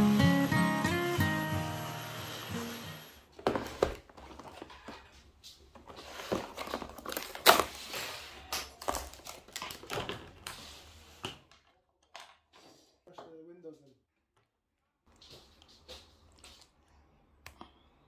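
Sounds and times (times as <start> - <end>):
plastic trays clicking and crinkling: 5.8 - 7.8, 8.5 - 10.5.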